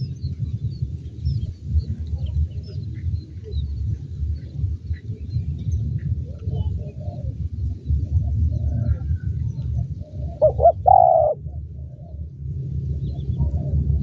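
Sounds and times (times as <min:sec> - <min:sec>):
steady low rumble: 0:00.0 - 0:14.0
dove cooing: 0:06.0 - 0:12.3.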